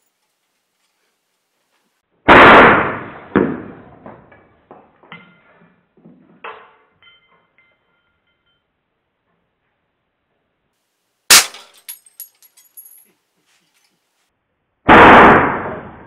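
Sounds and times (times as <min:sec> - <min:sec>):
air rifle shot: 0:02.3 - 0:03.7, 0:14.9 - 0:16.0
faint ringing: 0:06.9 - 0:09.1
pellet hitting target: 0:11.3 - 0:12.0.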